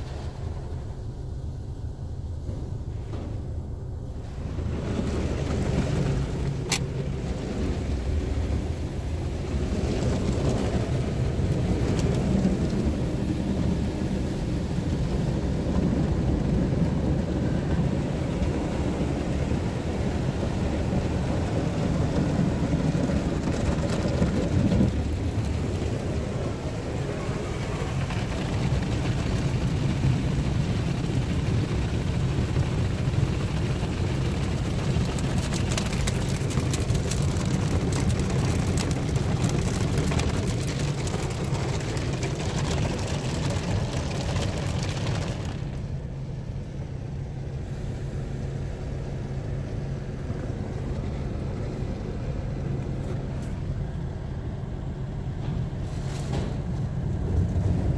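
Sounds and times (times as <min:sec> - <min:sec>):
car wash brushes scrubbing: 0:20.0 - 0:45.8.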